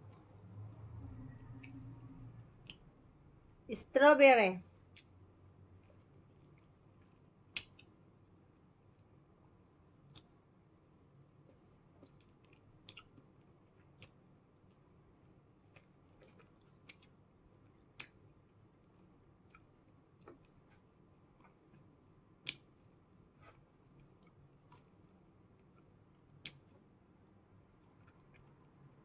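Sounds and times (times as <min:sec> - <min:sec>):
mouth clicks and smacks eating: 0:06.3 - 0:07.9, 0:11.5 - 0:14.8, 0:15.7 - 0:18.7, 0:19.4 - 0:22.8, 0:27.7 - 0:29.0.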